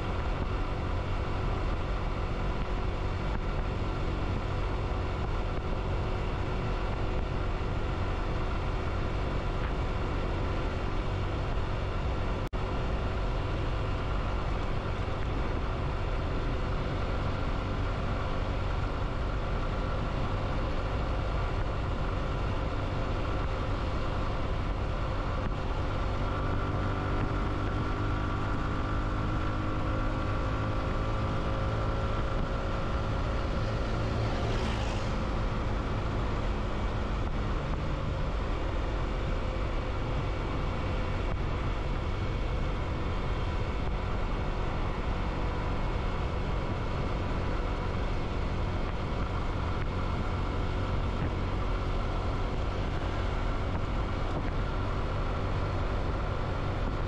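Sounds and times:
motorcycle engine running: 0.0 - 57.0
wind and road noise: 0.0 - 57.0.

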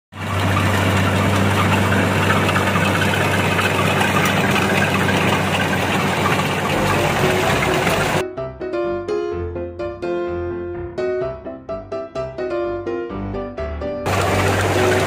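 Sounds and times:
diesel engine drone: 0.1 - 8.2, 14.1 - 15.0
threshing machinery din: 0.2 - 8.2, 14.1 - 15.0.

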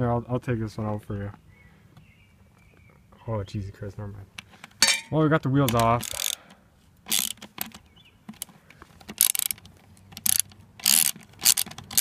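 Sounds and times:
socket ratchet wrench clicking: 5.7 - 6.4, 7.1 - 7.8, 9.1 - 9.6, 10.2 - 12.0.

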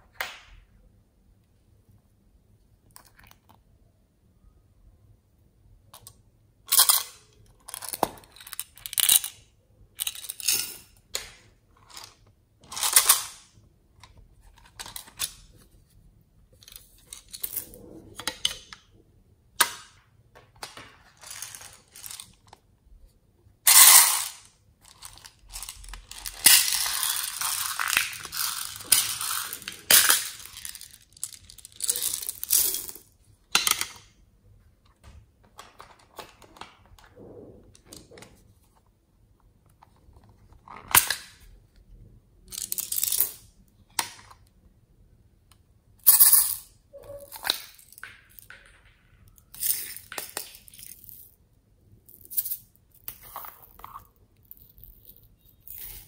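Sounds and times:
beads rattling and spilling: 21.1 - 22.4, 23.7 - 33.1, 49.2 - 51.4, 52.1 - 56.0.

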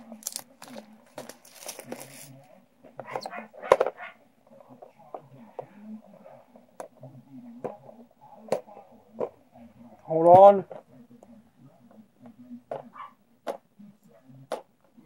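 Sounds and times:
plastic wrapping rustling: 0.0 - 2.4.

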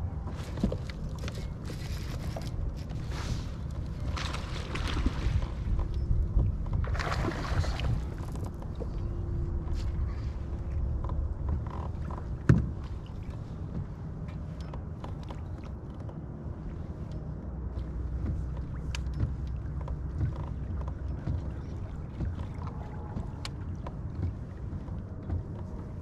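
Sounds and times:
water against a kayak hull: 0.0 - 26.0.

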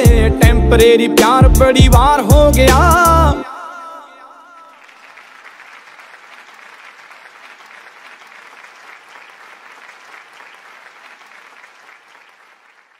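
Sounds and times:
crowd clapping: 4.6 - 12.9.

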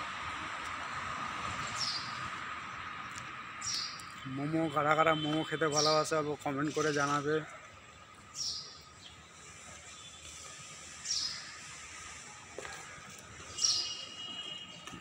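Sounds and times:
faint outdoor background noise: 0.0 - 15.0
bird chirping: 13.5 - 14.3.

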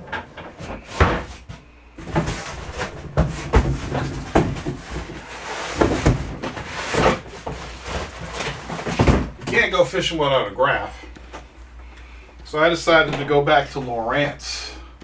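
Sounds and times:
items thumping down: 0.0 - 9.7.

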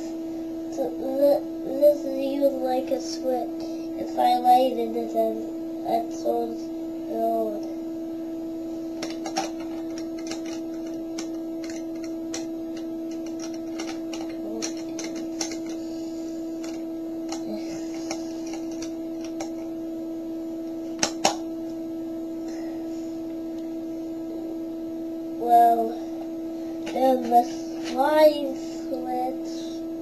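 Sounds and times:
steady low electronic tone: 0.0 - 30.0
plastic clicks: 9.0 - 15.8.

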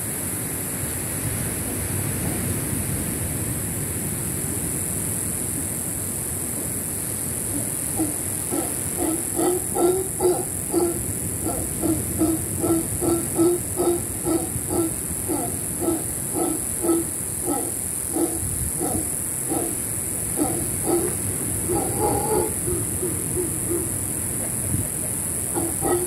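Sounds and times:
steady high-pitched hiss: 0.0 - 26.0
monkey higher calls: 7.5 - 26.0
monkeys grunting: 7.5 - 26.0.

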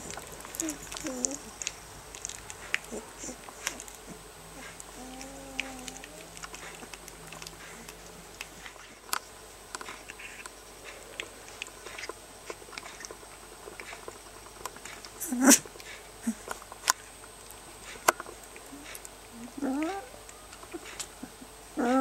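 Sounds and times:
puppies squeaking and whimpering: 0.0 - 1.8, 18.7 - 22.0
rustles: 0.0 - 22.0.

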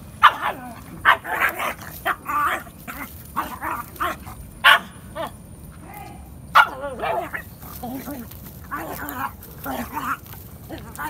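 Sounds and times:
dog barking: 0.2 - 2.6, 3.4 - 5.3, 6.6 - 7.4.

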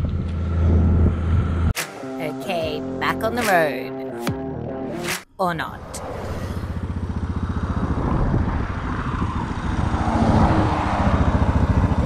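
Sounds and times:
motorcycle engine idling: 6.6 - 9.9.

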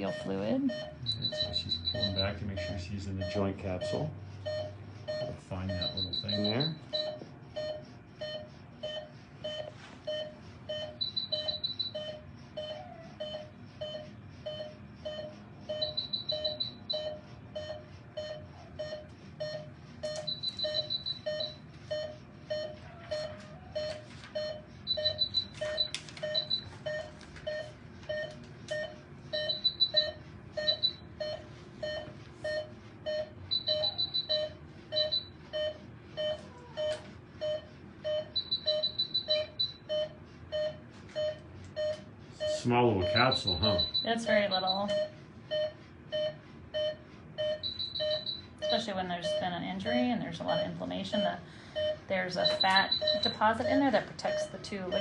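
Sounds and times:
monitor beeping: 0.0 - 55.0
rapidly pulsing alarm tone: 0.0 - 55.0.

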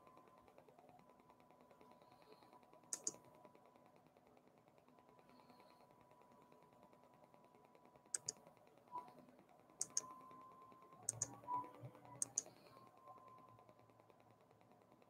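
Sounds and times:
computer mouse double clicks: 2.9 - 3.2, 8.2 - 8.4, 9.8 - 10.0, 11.1 - 11.3, 12.2 - 12.5.

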